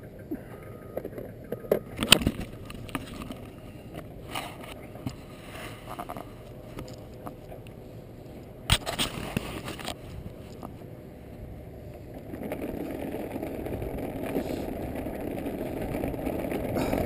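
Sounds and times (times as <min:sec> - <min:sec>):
wind rumble: 0:00.0 - 0:17.0
faint short beep: 0:00.6 - 0:02.1
camera handling on gravel: 0:02.0 - 0:07.6, 0:08.7 - 0:10.9.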